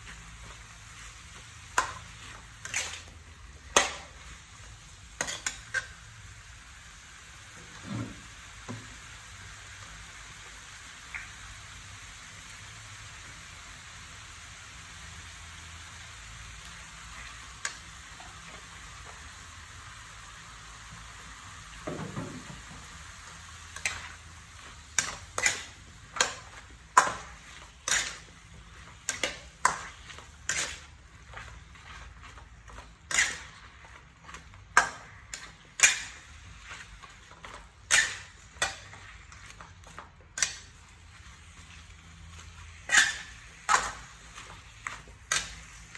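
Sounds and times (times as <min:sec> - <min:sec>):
metal spatula scraping a pan: 0:00.0 - 0:04.5, 0:05.2 - 0:06.0, 0:23.6 - 0:45.9
food sizzling in a wok: 0:00.0 - 0:45.9.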